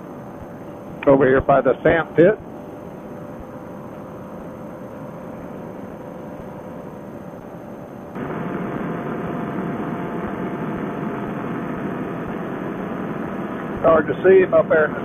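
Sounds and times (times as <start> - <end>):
paramotor engine droning: 0.0 - 15.0
wind rush: 8.2 - 13.9.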